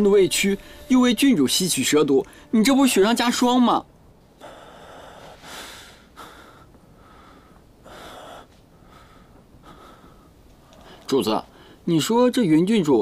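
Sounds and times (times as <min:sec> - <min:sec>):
man breathing heavily: 0:04.4 - 0:11.8.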